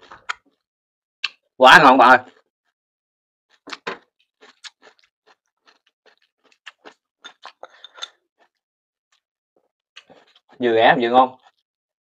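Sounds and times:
person chewing crunchy food: 0.0 - 0.6, 2.2 - 2.5, 3.5 - 10.6, 11.4 - 11.6
mouth clicks: 1.2 - 1.4.

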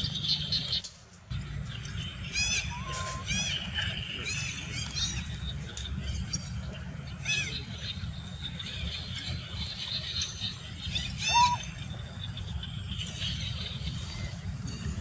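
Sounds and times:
macaques giving high calls: 2.5 - 3.5, 11.0 - 11.6.

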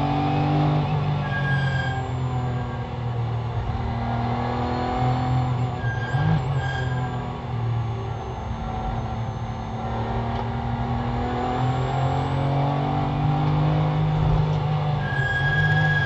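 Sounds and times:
race car engine accelerating: 0.0 - 16.0
steady high tone: 1.3 - 14.4.

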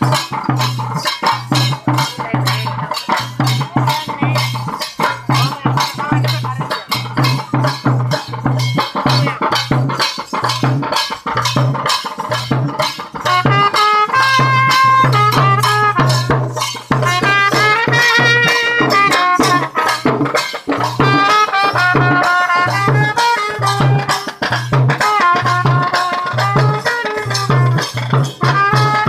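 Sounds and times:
drums beating fast rhythm: 0.0 - 29.0
trumpet playing melody: 12.9 - 29.0.

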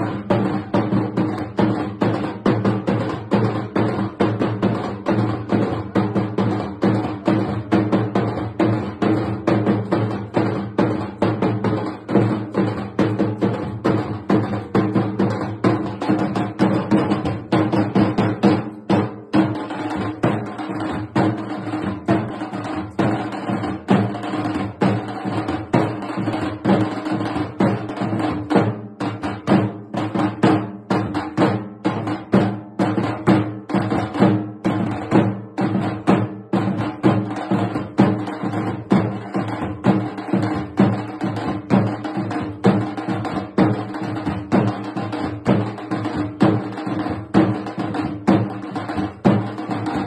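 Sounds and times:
drums beaten with sticks: 0.0 - 50.0.

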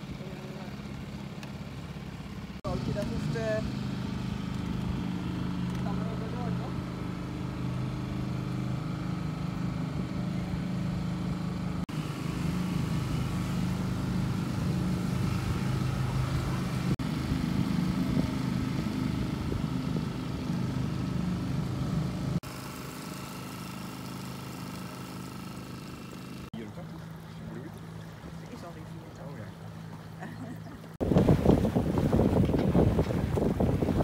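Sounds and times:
boat engine running: 0.0 - 34.0.

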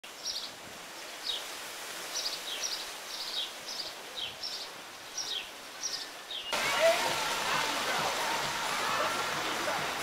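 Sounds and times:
small birds chirping: 2.1 - 6.6.

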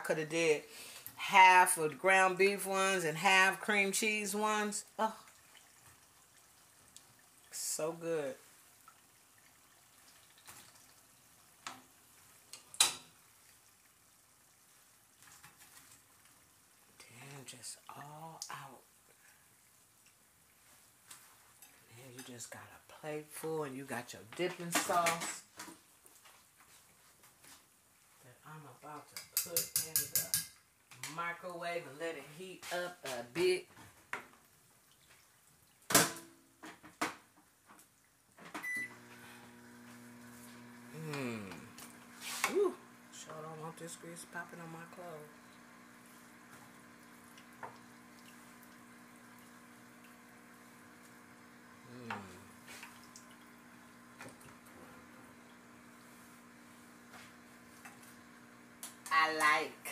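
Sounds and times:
microwave beep: 38.6 - 39.0
microwave running hum: 38.6 - 43.3, 44.2 - 59.9
oil sizzling in a pan: 38.8 - 43.3, 43.9 - 59.9.

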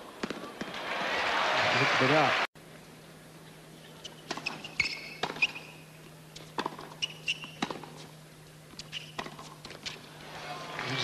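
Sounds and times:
sneaker squeaks: 4.0 - 8.1, 8.8 - 9.6
racket striking tennis ball: 4.3 - 5.6, 6.4 - 8.1, 8.7 - 10.0.

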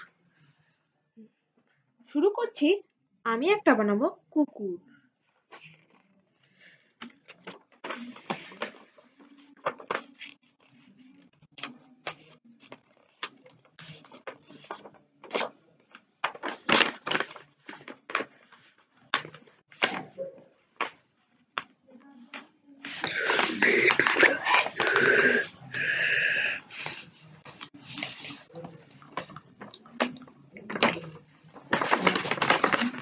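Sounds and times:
paper rustling and crinkling: 5.4 - 20.2, 22.3 - 25.9, 26.7 - 33.0.

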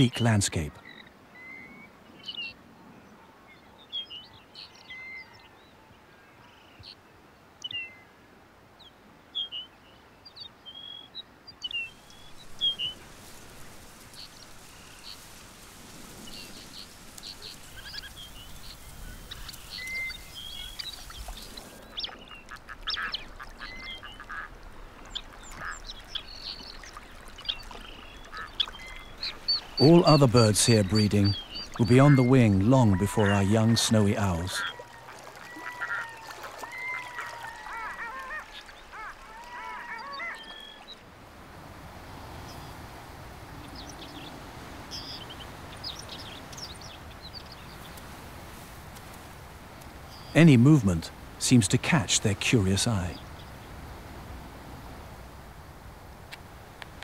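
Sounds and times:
faint steady hiss: 0.0 - 3.5, 5.7 - 34.6, 36.1 - 57.0
duck calls: 22.5 - 24.5, 29.3 - 36.2.

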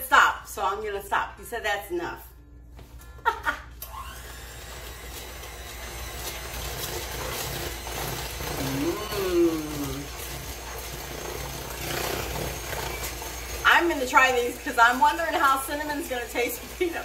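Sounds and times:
electric mixer beating batter: 3.8 - 17.0
dog howling: 8.6 - 10.2.

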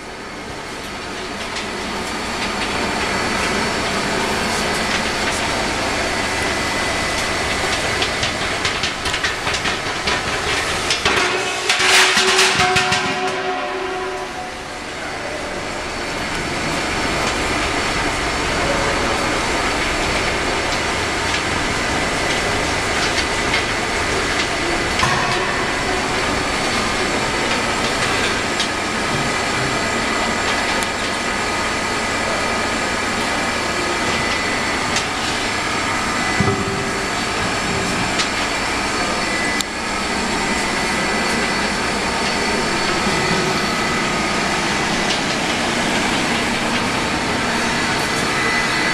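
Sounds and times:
welding machine hiss and hum: 0.0 - 48.9
thin high whine: 12.0 - 20.2.

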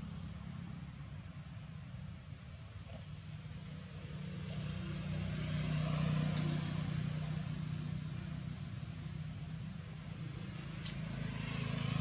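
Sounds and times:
vehicle driving past: 3.5 - 9.3, 10.0 - 12.0.

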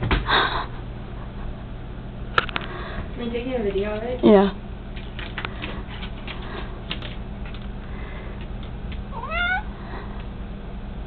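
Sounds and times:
cat meowing: 9.1 - 9.7.

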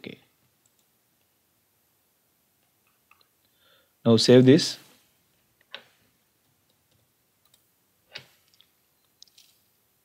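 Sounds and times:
mouse and keyboard clicks: 6.7 - 9.6.

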